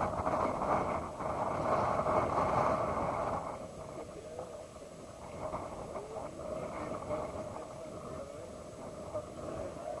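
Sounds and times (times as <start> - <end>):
steady outdoor hiss: 0.0 - 10.0
faint indistinct voices: 2.6 - 10.0.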